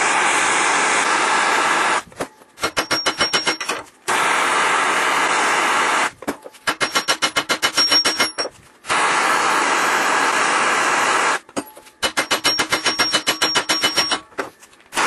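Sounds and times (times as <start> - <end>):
torch flame hissing: 0.0 - 2.0, 8.8 - 11.4.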